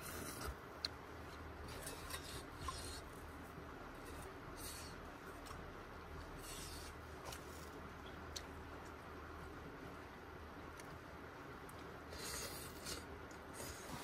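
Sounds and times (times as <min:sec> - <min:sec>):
faint low hum: 0:00.0 - 0:14.0
utensil scraping cooking pot: 0:01.6 - 0:03.2.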